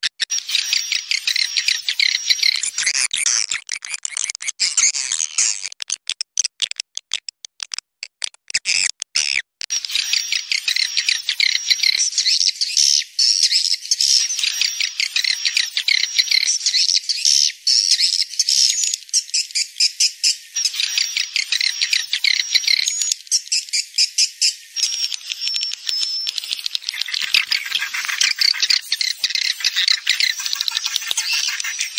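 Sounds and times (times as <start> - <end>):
birds twittering and chirping: 0.2 - 3.0, 9.7 - 31.9.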